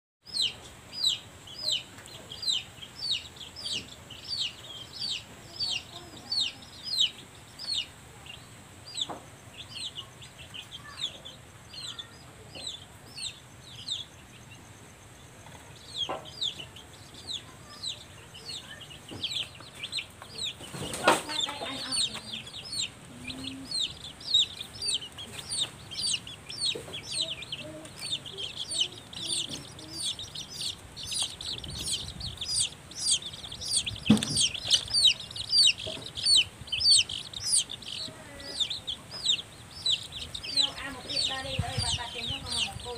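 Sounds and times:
chicks peeping: 0.2 - 42.9
sharp knock: 34.0 - 34.6.

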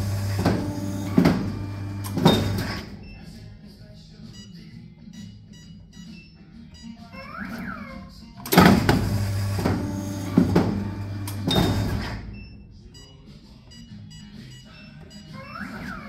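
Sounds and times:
machine hum: 0.0 - 3.0, 8.4 - 12.3
paper guillotine clunks: 0.0 - 3.0, 8.4 - 12.3.

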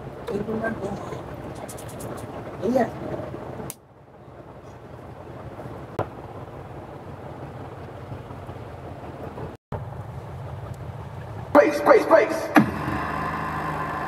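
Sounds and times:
low hum with hiss: 0.0 - 14.0.

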